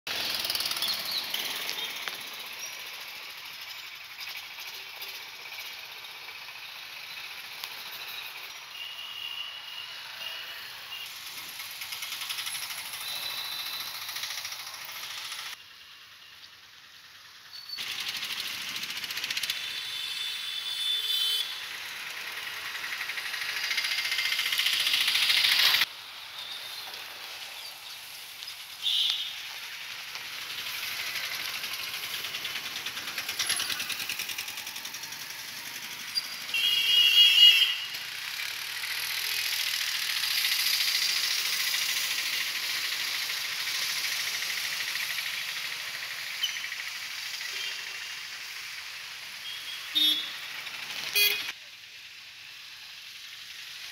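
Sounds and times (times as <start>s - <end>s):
street traffic passing: 0.1s - 53.9s.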